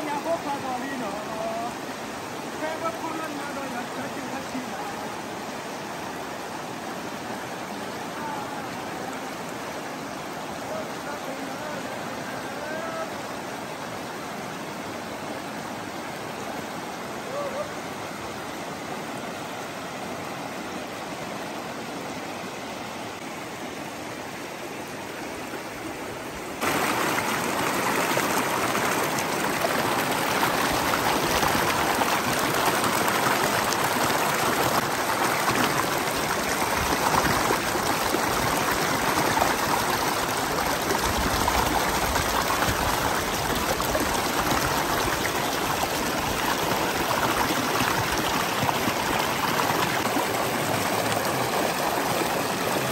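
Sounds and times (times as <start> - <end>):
river rushing over boulders: 0.0 - 52.9.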